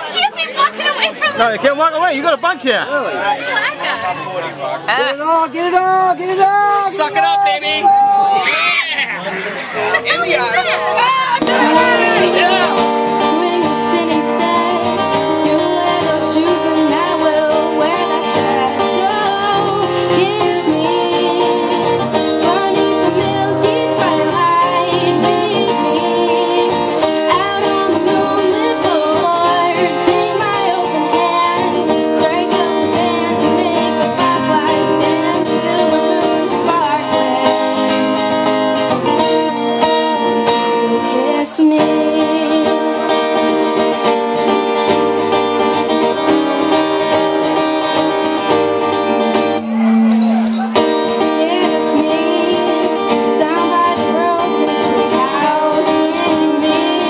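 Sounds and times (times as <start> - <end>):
acoustic guitar playing: 0.0 - 57.0
woman singing: 11.2 - 38.7, 39.9 - 43.4, 50.8 - 57.0.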